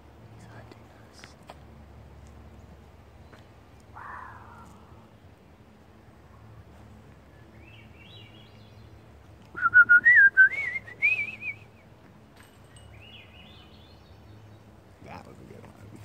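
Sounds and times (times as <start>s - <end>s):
songbird warbling: 3.9s - 5.0s.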